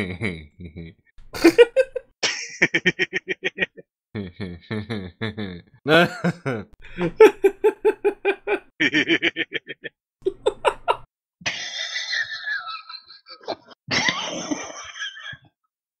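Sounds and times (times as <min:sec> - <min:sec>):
rough laughs: 0:04.5 - 0:15.5
rhythmic laughter: 0:04.7 - 0:15.5.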